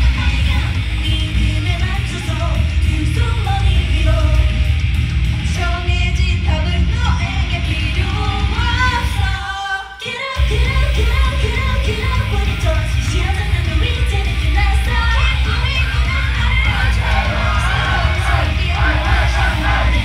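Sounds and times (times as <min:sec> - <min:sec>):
woman singing: 0:00.0 - 0:04.8, 0:05.4 - 0:20.0
heavy bass beat: 0:00.0 - 0:09.4, 0:10.4 - 0:20.0
live pop-rock band: 0:00.0 - 0:20.0.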